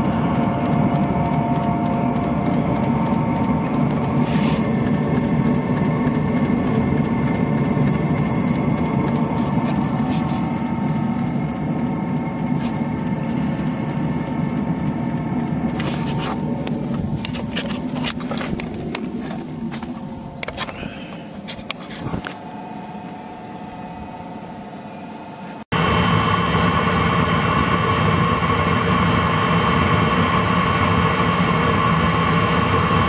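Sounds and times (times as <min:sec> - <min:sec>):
fast regular ticking: 0:00.0 - 0:21.8
diesel heater roar and fan whine: 0:00.0 - 0:33.0.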